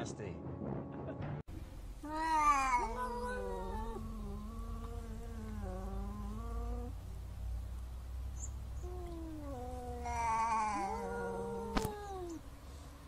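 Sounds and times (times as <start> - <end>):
cats yowling: 2.0 - 7.0, 8.8 - 12.4.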